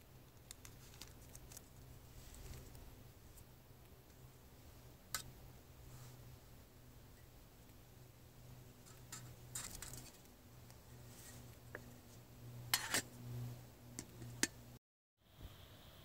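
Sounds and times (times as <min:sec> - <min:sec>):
spoon scraping in metal mug: 0:08.8 - 0:10.2, 0:12.7 - 0:13.2.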